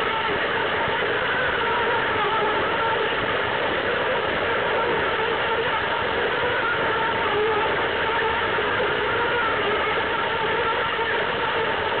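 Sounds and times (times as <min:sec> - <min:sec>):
toy train motor whirring: 0:04.8 - 0:08.4.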